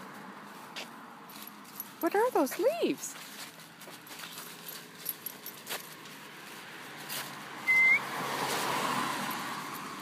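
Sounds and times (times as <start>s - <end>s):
dry leaves rustling: 0.0s - 10.0s
passing car: 3.6s - 10.0s
short high chirp: 7.7s - 8.0s.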